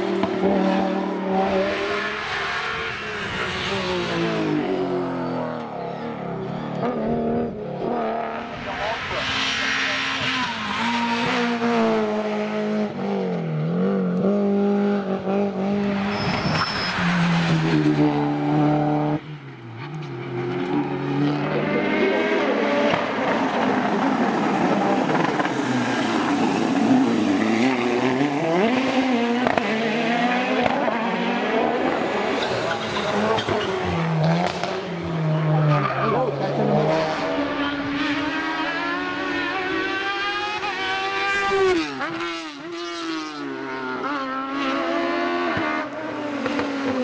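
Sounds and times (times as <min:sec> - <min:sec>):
race car engines revving: 0:00.0 - 0:47.0
tires squealing: 0:08.7 - 0:11.6, 0:15.8 - 0:18.6, 0:21.6 - 0:29.6, 0:31.7 - 0:38.7.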